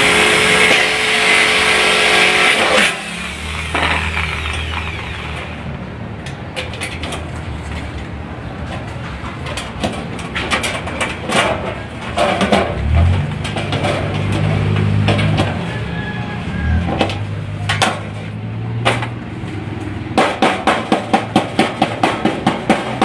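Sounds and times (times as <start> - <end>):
sheet-metal gutter rattling and clanking: 8.7 - 15.7.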